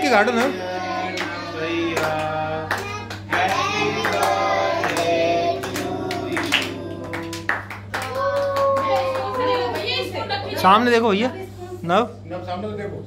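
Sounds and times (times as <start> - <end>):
children singing together: 0.6 - 7.2
hand clapping: 2.0 - 9.9.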